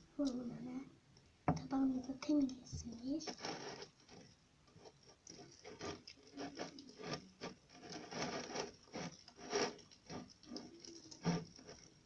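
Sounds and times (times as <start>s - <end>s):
fingers scraping slime on a plate: 2.9s - 12.0s.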